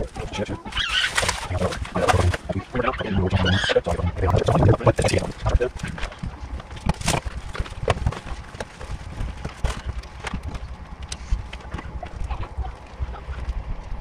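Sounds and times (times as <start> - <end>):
packing materials rustling: 0.0 - 2.7, 5.0 - 11.7.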